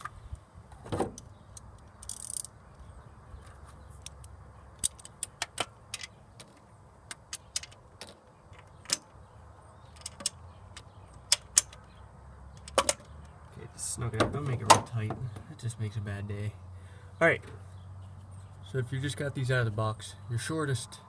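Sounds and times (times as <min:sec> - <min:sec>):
ratchet clicking: 0:01.6 - 0:02.5.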